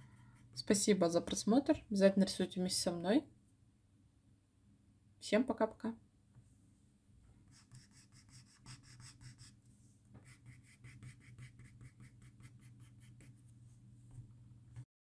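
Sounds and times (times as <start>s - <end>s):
pencil scratching on paper: 7.5s - 9.6s, 10.2s - 13.5s.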